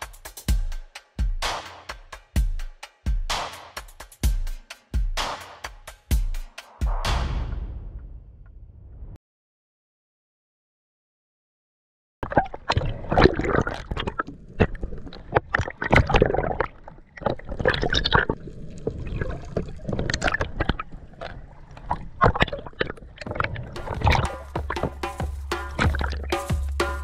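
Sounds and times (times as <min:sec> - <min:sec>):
music with a beat: 0:00.0 - 0:08.1, 0:23.8 - 0:27.0
water splashing and gurgling: 0:12.2 - 0:26.7.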